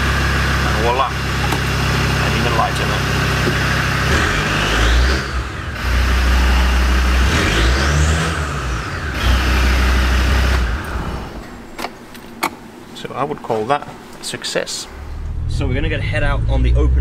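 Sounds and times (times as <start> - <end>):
diesel engine revving: 0.0 - 11.4, 15.0 - 17.0.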